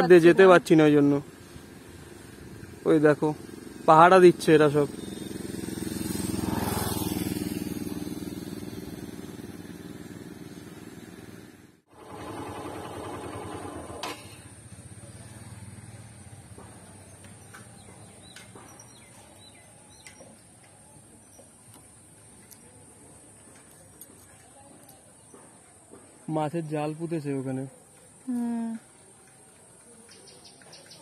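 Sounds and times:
motorcycle engine passing: 0:00.2 - 0:19.6.

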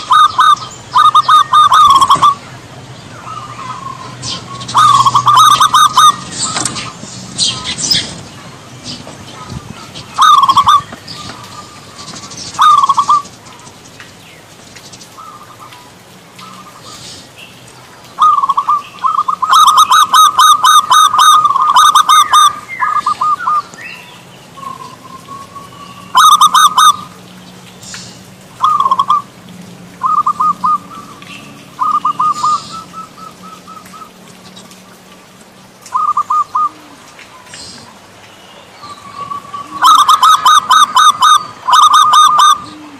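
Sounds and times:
dove cooing: 0:00.0 - 0:02.5, 0:03.2 - 0:13.8, 0:18.1 - 0:23.7, 0:24.6 - 0:27.2, 0:28.6 - 0:29.3, 0:30.0 - 0:34.8, 0:35.9 - 0:38.0, 0:38.8 - 0:42.9.

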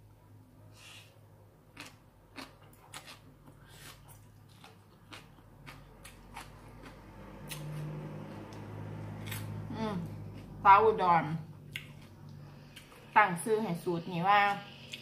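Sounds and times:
faint room hum: 0:00.0 - 0:15.0
person chewing crunchy food: 0:01.6 - 0:10.6, 0:11.6 - 0:13.2, 0:14.7 - 0:15.0.

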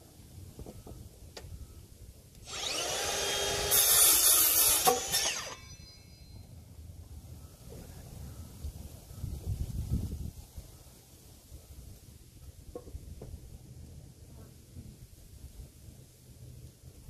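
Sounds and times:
circular saw cutting wood: 0:02.4 - 0:06.0.

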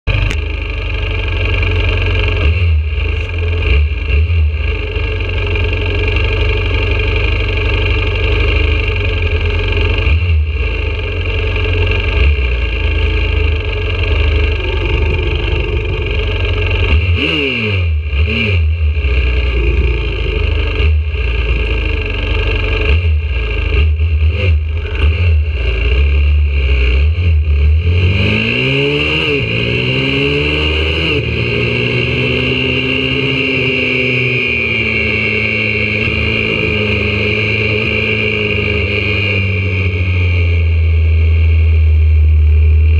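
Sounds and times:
small bikes idling: 0:00.1 - 0:17.0, 0:19.0 - 0:24.0
pit bike engine idling: 0:00.1 - 0:17.4, 0:18.0 - 0:26.5.

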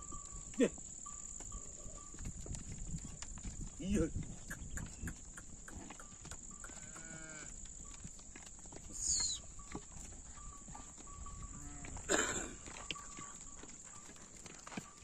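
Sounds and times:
cattle lowing: 0:10.4 - 0:15.0.

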